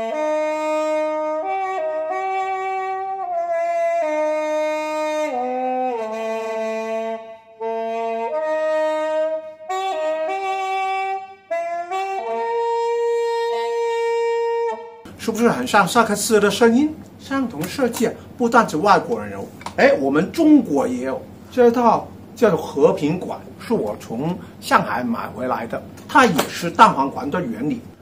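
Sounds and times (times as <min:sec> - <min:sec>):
bamboo saxophone melody: 0:00.0 - 0:15.2.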